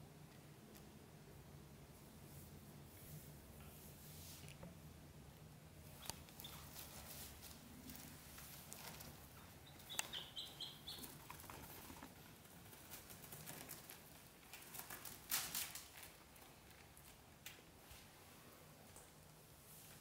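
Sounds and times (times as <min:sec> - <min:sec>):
rustling in wicker basket: 0:05.9 - 0:18.4
duckling peeps: 0:09.5 - 0:12.1.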